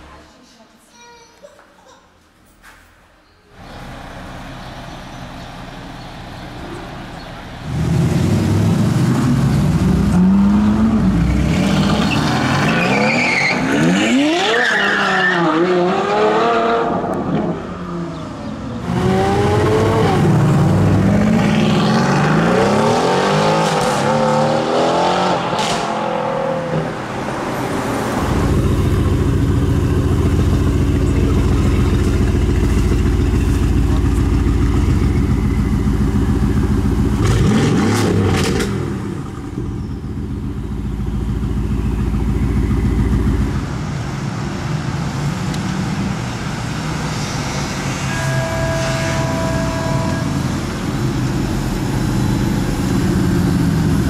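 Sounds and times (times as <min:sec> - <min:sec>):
car engine revving and idling: 0:03.6 - 0:13.0, 0:18.8 - 0:27.5, 0:28.1 - 0:47.0.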